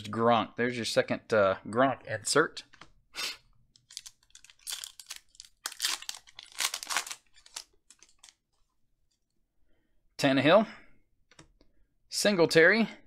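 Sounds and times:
foil wrapper crinkling and tearing: 3.8s - 8.4s.

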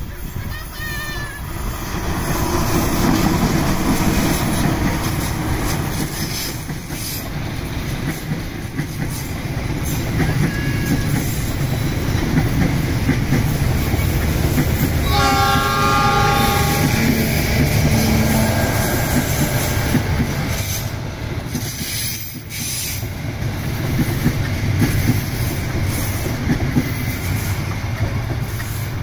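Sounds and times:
train rumbling past: 0.0s - 29.0s
chord horn: 15.0s - 17.4s.

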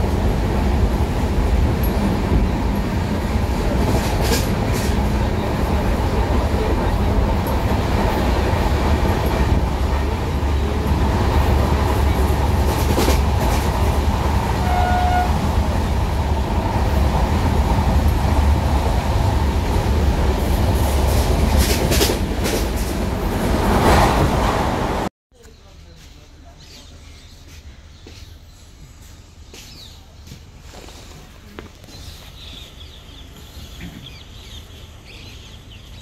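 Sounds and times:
train rumbling on tracks: 0.0s - 25.1s, 28.2s - 36.0s
wheels clicking on rail joints: 1.1s - 15.4s, 16.0s - 24.4s.

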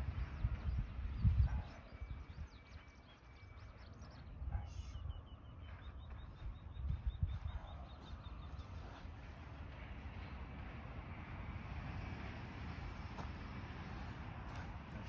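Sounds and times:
small birds chirping: 0.0s - 10.7s.

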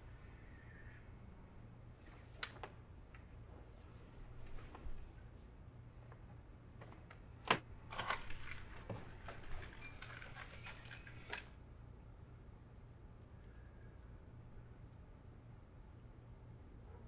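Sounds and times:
faint low hum: 0.0s - 17.0s
small metal objects jingling: 7.9s - 11.6s.

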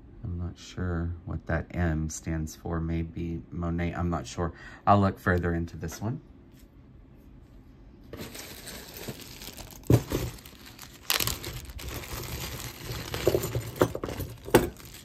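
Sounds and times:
plastic bag crinkling: 8.2s - 15.0s.

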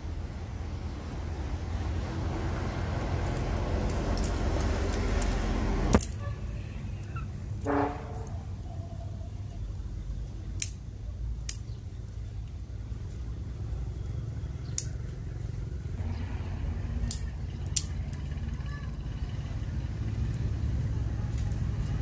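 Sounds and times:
steady low rumble: 0.0s - 22.0s
twigs snapping: 3.2s - 6.2s, 10.2s - 13.3s, 14.5s - 15.4s, 17.0s - 18.1s.

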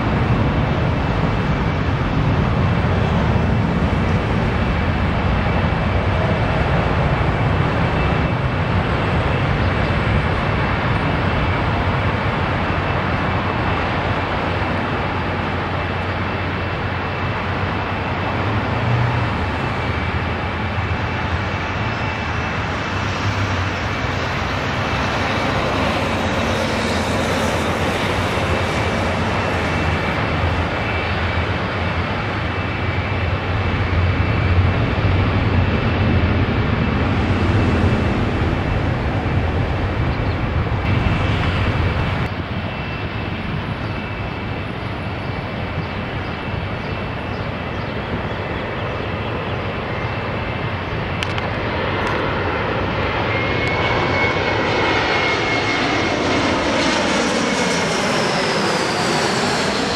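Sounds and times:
jet and traffic rumble: 0.0s - 59.9s
jet engines whining overhead: 0.0s - 59.9s.

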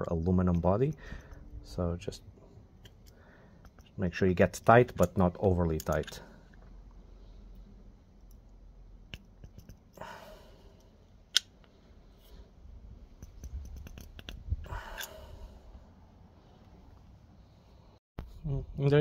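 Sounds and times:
spanner clicking and scraping metal: 13.1s - 15.2s.

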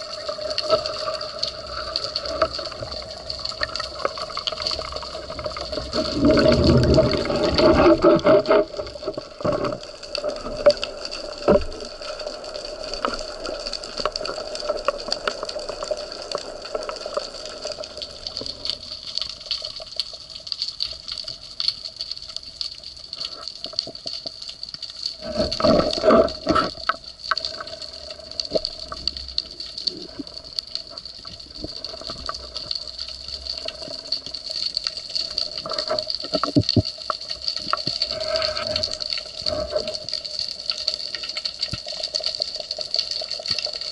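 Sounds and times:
crackling clicks: 0.0s - 43.9s
rushes of moving water: 0.0s - 43.9s
underwater hiss: 37.8s - 43.7s.

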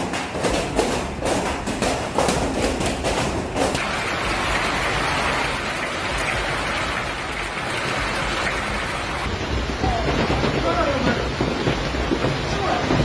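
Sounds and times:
hail and heavy rain pelting: 3.7s - 13.0s.

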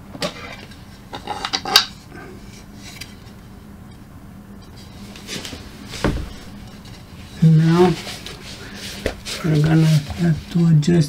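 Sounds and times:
soft knock: 6.0s - 6.5s.

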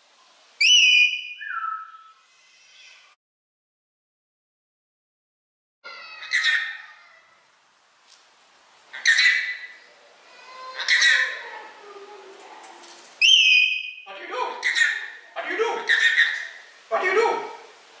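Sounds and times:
whistle-like bird call: 0.6s - 2.2s, 13.2s - 14.1s
parrot screeching: 0.6s - 3.2s, 5.8s - 7.5s, 8.9s - 11.6s, 13.2s - 16.7s.

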